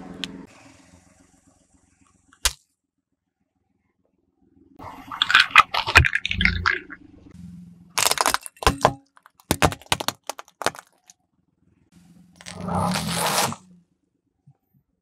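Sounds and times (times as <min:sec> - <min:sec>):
plastic toys cracking: 0:05.2 - 0:07.0, 0:08.0 - 0:11.1.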